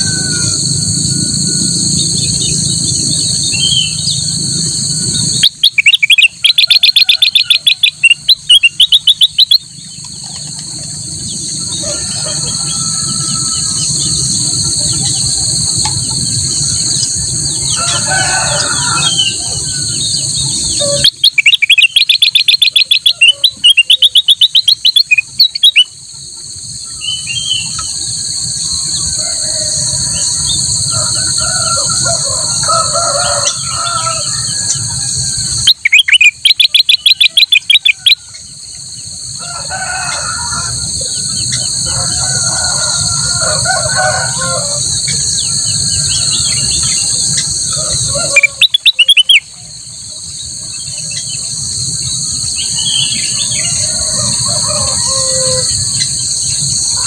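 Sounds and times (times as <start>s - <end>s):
bird singing rapid repeated notes: 0.0s - 12.7s, 18.6s - 26.0s, 26.7s - 30.9s, 33.5s - 38.2s, 44.9s - 49.6s, 50.2s - 54.1s
high-pitched insect drone: 0.0s - 57.0s.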